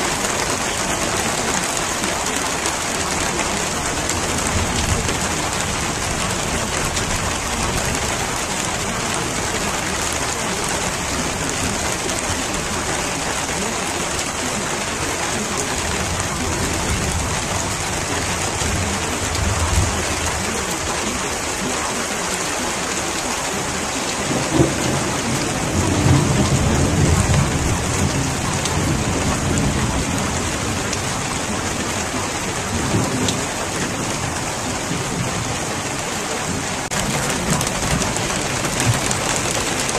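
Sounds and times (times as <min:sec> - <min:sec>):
heavy rain: 0:00.0 - 0:39.9
rolling thunder: 0:24.2 - 0:31.8.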